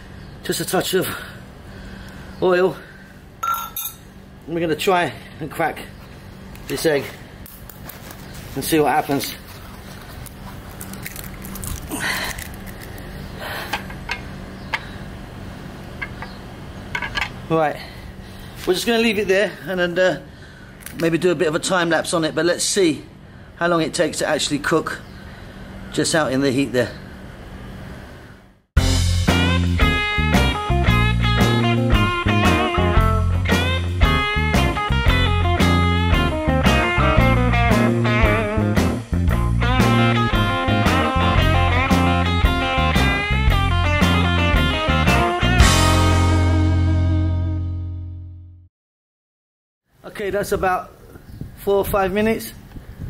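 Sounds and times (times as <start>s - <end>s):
steady low hum: 0.0s - 28.6s
egg shell cracking: 10.2s - 13.1s
blues-rock guitar music: 28.8s - 48.1s.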